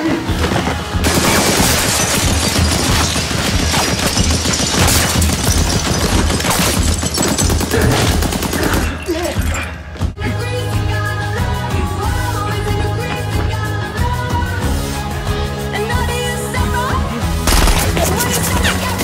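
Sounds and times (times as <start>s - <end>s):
automatic gunfire: 17.5s - 18.3s.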